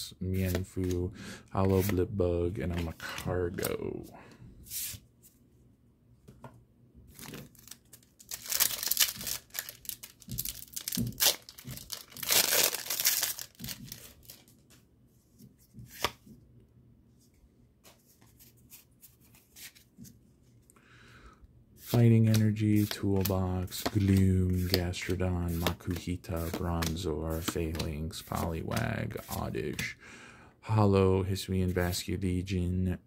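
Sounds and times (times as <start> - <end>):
foil wrapper tearing and crinkling: 7.2 - 14.5.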